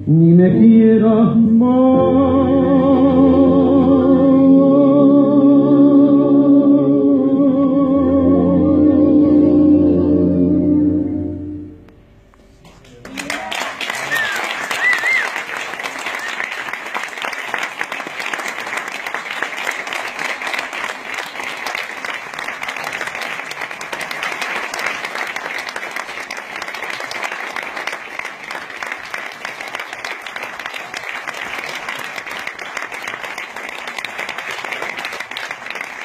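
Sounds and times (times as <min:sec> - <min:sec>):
audience clapping: 0:12.6 - 0:36.0.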